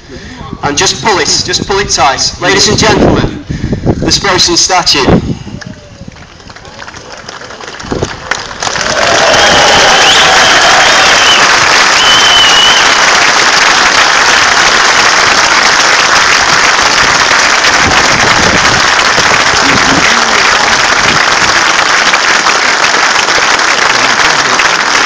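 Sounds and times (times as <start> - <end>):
crowd applauding: 6.0 - 25.0.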